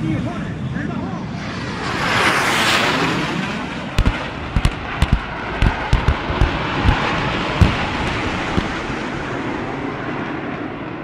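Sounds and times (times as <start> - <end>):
military aircraft roaring overhead: 0.0 - 11.0
sharp cracks and pops of flares: 4.0 - 9.2.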